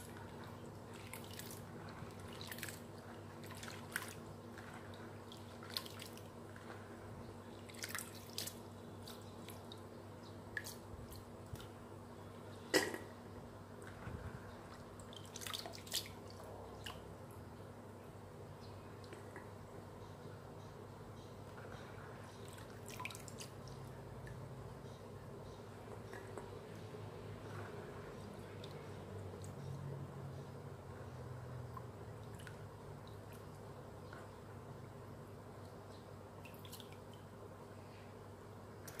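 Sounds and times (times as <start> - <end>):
water drips and splashes: 0.0 - 6.3, 7.5 - 9.9, 14.7 - 17.1, 22.5 - 24.4, 31.7 - 33.6, 36.4 - 37.3
hands rinsing fruit in water: 0.0 - 6.8, 7.6 - 9.8, 14.8 - 17.0.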